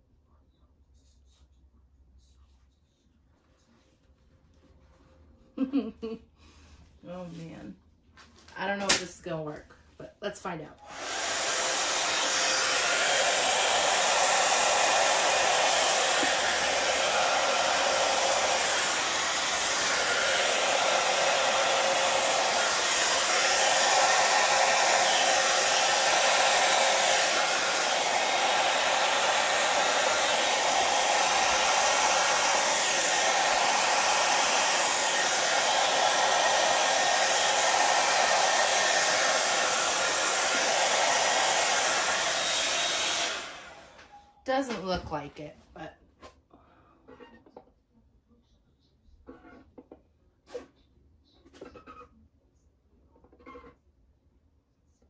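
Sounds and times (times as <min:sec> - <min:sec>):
hair dryer blowing: 0:10.8 - 0:45.3.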